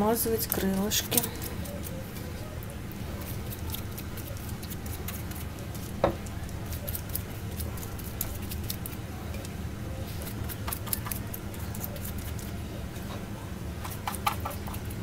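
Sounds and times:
steady low hum: 0.0s - 15.0s
pastry brush wet ticks: 2.6s - 9.6s, 10.2s - 12.6s.

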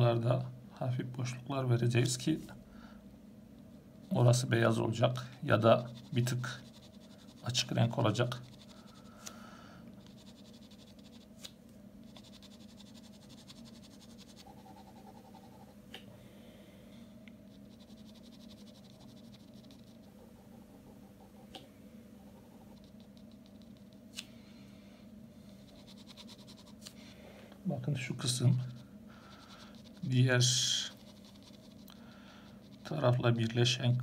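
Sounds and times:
pen scratching on paper: 5.6s - 9.0s, 10.0s - 11.3s, 12.0s - 15.8s, 17.5s - 21.5s, 25.7s - 26.8s.

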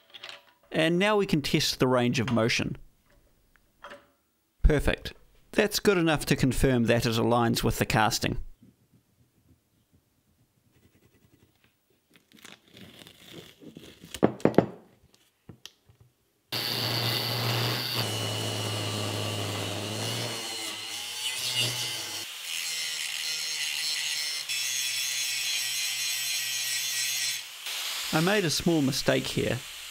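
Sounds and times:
angle grinder cutting steel: 16.6s - 28.9s.

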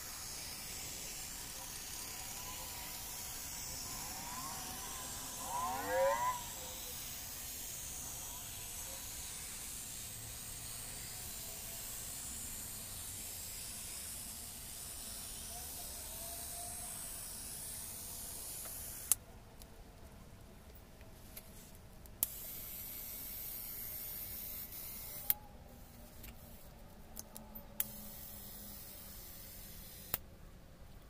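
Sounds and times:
faint steady hiss: 0.0s - 31.0s
click: 27.2s - 28.0s.

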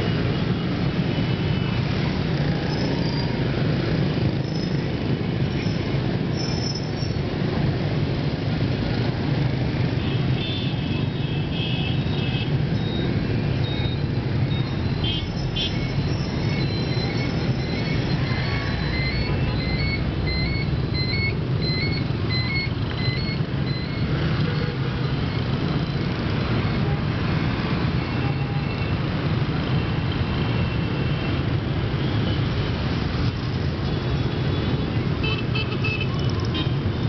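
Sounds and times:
scooters and motorbikes passing: 1.8s - 5.4s.

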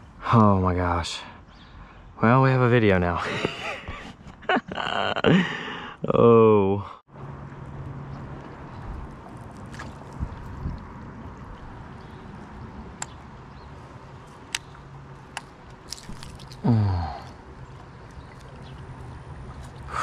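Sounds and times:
water sloshing around boat: 7.4s - 20.0s
person groaning: 16.6s - 17.3s.

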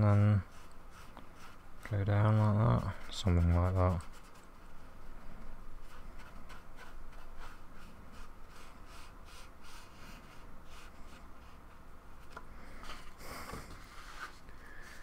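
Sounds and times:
paintbrush stroking on card: 0.0s - 4.9s, 5.8s - 11.7s.

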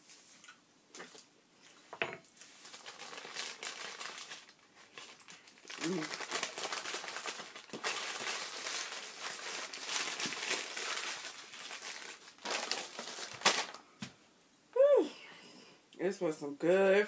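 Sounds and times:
loud paper crackle: 2.4s - 13.8s
paper bag crinkling: 2.4s - 13.9s.

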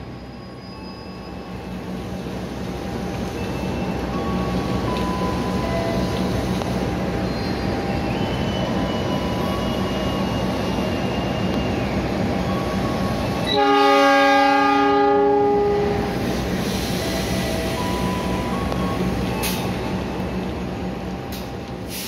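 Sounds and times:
locomotive engine rumbling: 0.0s - 22.0s
train air horn blast: 13.5s - 16.1s.

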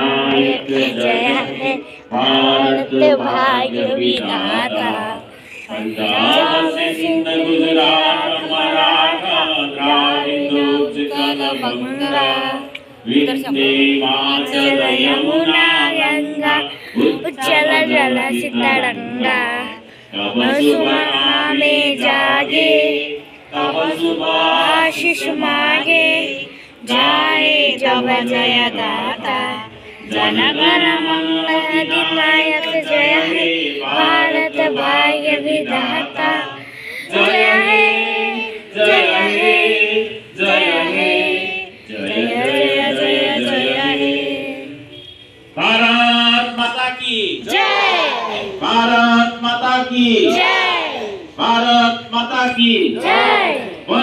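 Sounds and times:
adults and children singing: 0.0s - 46.8s, 47.4s - 54.0s.

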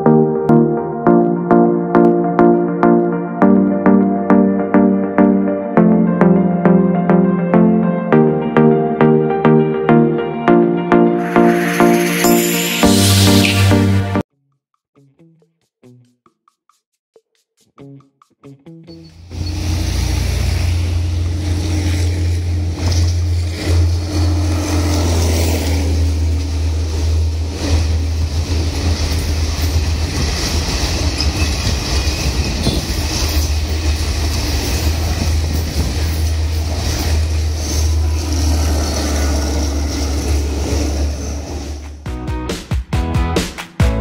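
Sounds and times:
train engine droning: 11.2s - 14.2s, 19.2s - 42.0s
wheels clattering over rail joints: 19.3s - 42.0s.

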